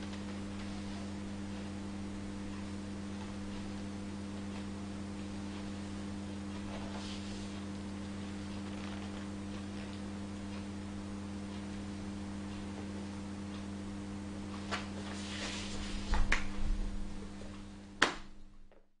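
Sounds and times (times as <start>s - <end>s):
low electrical hum: 0.0s - 19.0s
low thumps: 15.9s - 17.5s.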